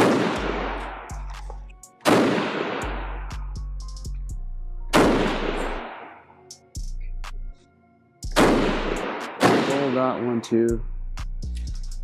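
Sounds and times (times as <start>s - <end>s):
rifle shots echoing indoors: 0.0s - 1.1s, 2.0s - 3.1s, 5.0s - 6.2s, 8.4s - 10.1s
background music with bass: 0.0s - 2.0s, 2.8s - 7.6s, 8.2s - 12.0s.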